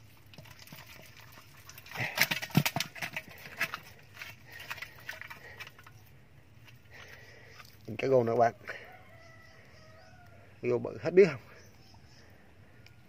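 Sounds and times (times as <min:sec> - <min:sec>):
fish thrashing and splashing in water: 0:00.0 - 0:06.0.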